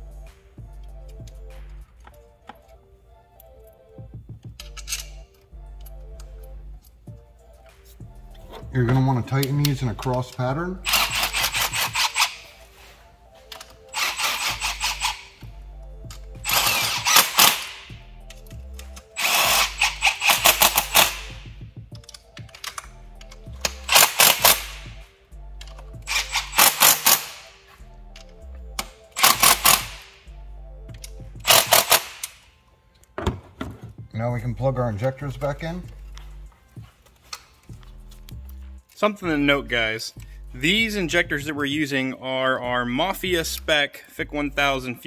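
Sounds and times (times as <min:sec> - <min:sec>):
background music: 0:00.0 - 0:45.0
power tool rapid clicking: 0:10.9 - 0:12.4, 0:14.0 - 0:15.3, 0:16.4 - 0:17.8, 0:19.2 - 0:21.4, 0:23.6 - 0:24.9, 0:26.1 - 0:27.4, 0:29.2 - 0:30.1, 0:31.4 - 0:32.3.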